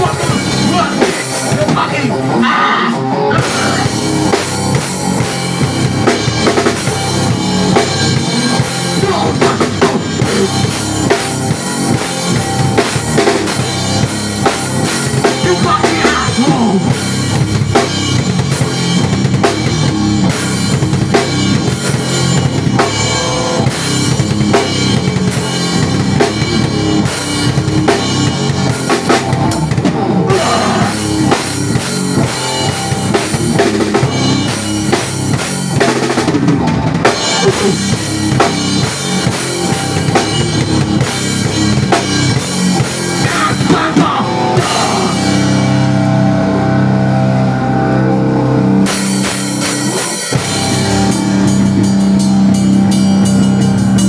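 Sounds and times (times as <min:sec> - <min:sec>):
drum kit played hard: 0:00.0 - 0:54.0.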